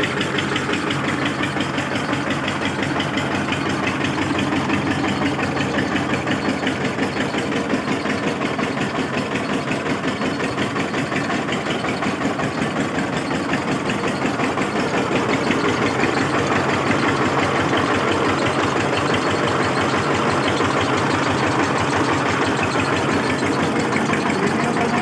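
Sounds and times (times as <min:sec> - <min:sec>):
tractor engine running: 0:00.0 - 0:25.0.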